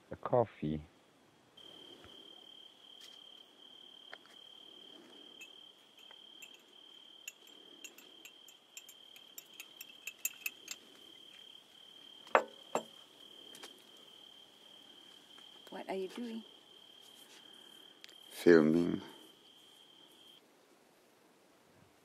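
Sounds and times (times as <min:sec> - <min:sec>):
cricket trilling: 0:01.6 - 0:20.4
light clicks and clinks: 0:05.4 - 0:11.5.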